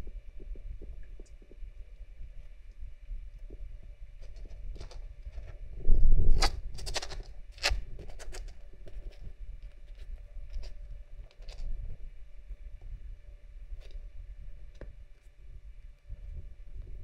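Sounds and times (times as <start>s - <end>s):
kitten claws scratching floor: 4.2s - 5.6s, 6.3s - 11.7s
rustling: 6.3s - 11.7s.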